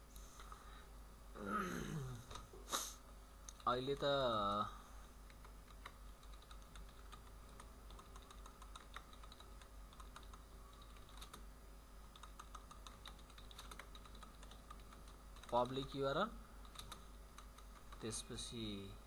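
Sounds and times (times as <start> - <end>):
low steady hum: 0.0 - 19.0
keyboard keystroke clicks: 16.6 - 18.1.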